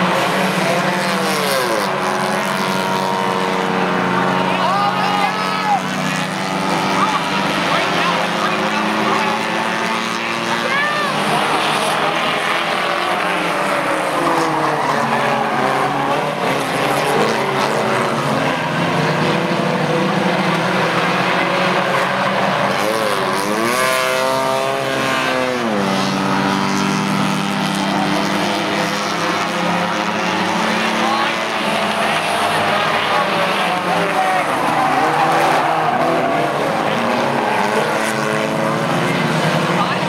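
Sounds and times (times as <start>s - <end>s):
race car engines droning: 0.0s - 40.0s.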